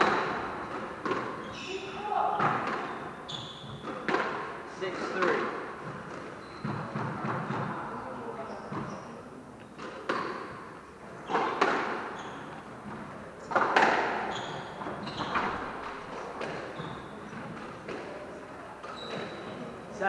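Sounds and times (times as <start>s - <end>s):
squash ball struck by rackets: 0.0s - 1.4s, 2.1s - 3.0s, 3.6s - 4.6s, 5.2s - 7.7s, 9.8s - 10.7s, 11.3s - 12.2s, 12.8s - 18.1s
shoes squeaking on wooden floor: 0.0s - 4.2s, 4.9s - 10.2s, 11.2s - 18.0s, 18.8s - 19.8s.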